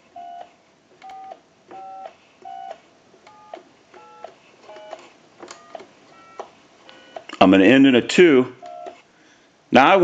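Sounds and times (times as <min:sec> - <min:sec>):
keypad dialing beeps: 0:00.2 - 0:05.0, 0:05.6 - 0:07.3, 0:08.7 - 0:09.0.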